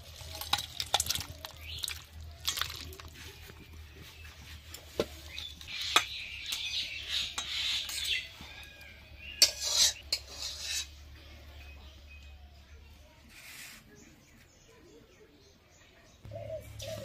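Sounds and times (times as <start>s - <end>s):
spatula scraping metal bowl: 9.3s - 11.0s.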